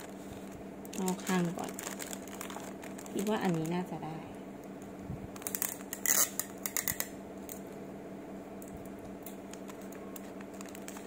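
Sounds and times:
wrapping paper crinkling: 0.0s - 7.1s, 9.2s - 11.0s
steady low hum: 0.0s - 11.0s.

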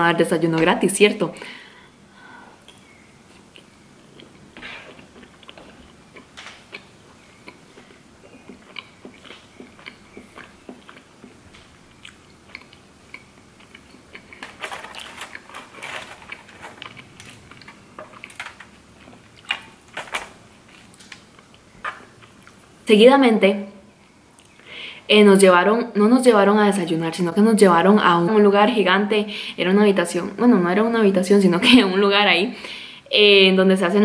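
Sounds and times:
person chewing and smacking: 2.6s - 20.0s
bread tearing over foil: 14.3s - 18.8s.

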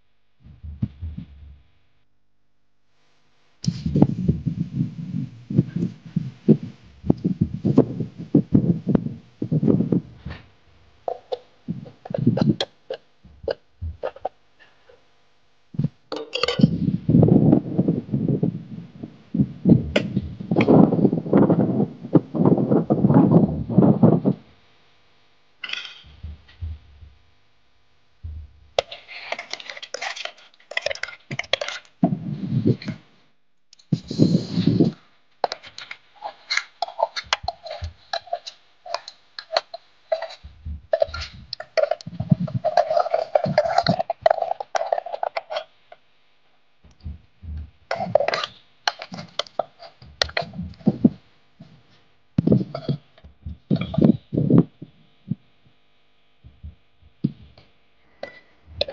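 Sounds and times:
person's voice: 0.4s - 1.6s, 3.7s - 10.4s, 11.1s - 12.7s, 15.8s - 24.4s, 26.1s - 27.1s, 47.0s - 48.5s.

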